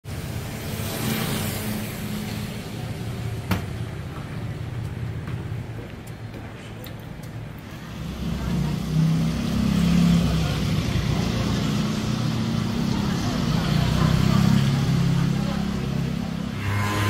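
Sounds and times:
tyres hissing on wet road: 0.1 - 3.1, 7.7 - 16.3
scooter engine passing: 0.1 - 5.2, 7.7 - 17.0.

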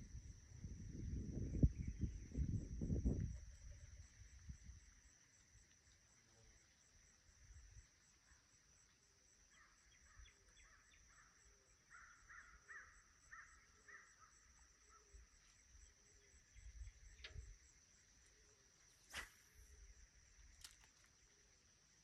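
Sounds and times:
high insect drone: 0.0 - 22.0
distant bird calling: 9.6 - 14.3
fishing rod cast click: 20.5 - 21.1.

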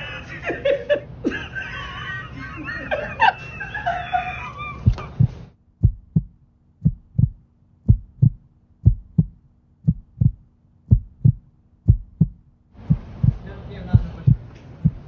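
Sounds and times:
faint low hum: 0.0 - 15.0
heartbeat thumps: 4.8 - 15.0.

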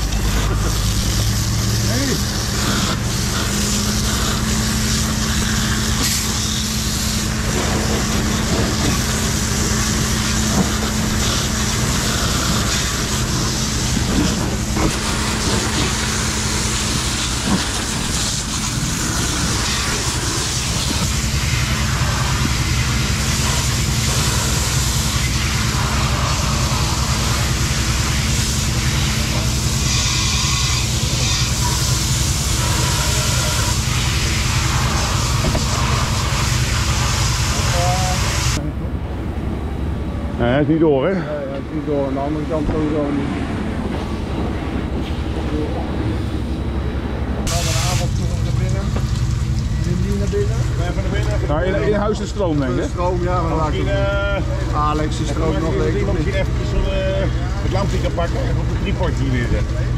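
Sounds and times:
hose nozzle spraying water: 0.0 - 38.6, 47.4 - 53.9.

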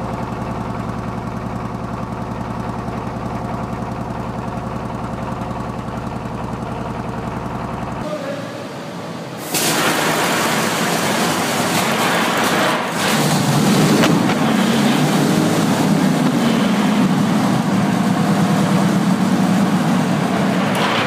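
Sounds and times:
aircraft engine running: 4.6 - 21.0.

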